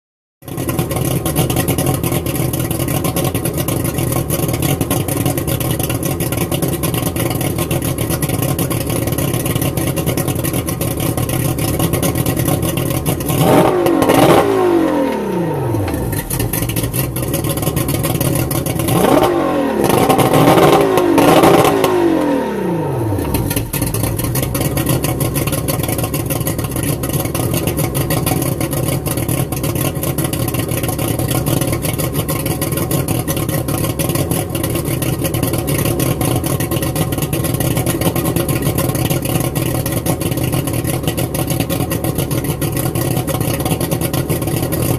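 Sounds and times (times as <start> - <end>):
outboard engine idling and revving: 0.4 - 44.9.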